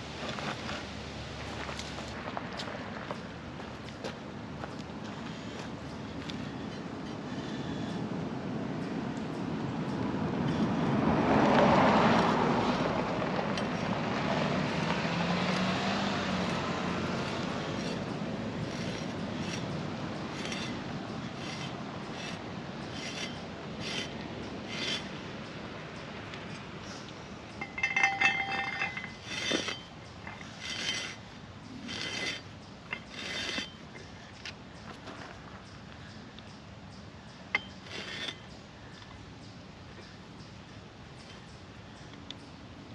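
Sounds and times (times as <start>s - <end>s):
cars passing: 0.0s - 42.9s
screw scraping through soil: 16.4s - 25.2s, 27.6s - 34.1s, 37.6s - 38.5s
metallic clinking: 27.5s - 33.8s.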